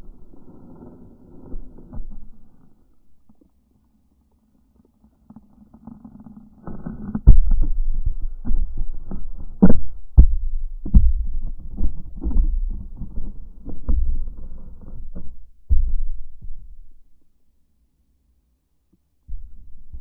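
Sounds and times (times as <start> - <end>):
camera knocking against rocks underwater: 7.1 - 17.0.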